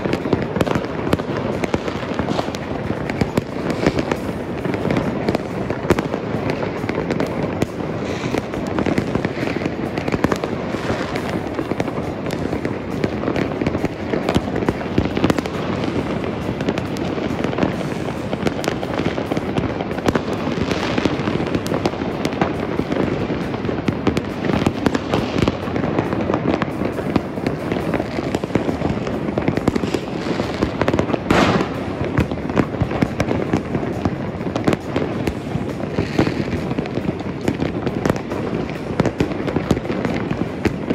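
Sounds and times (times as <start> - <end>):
fireworks and firecrackers crackling: 0.0 - 40.9.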